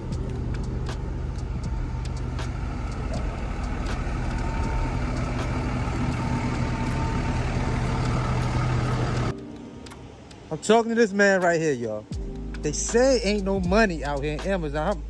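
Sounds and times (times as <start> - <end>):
truck engine idling: 0.0 - 9.3.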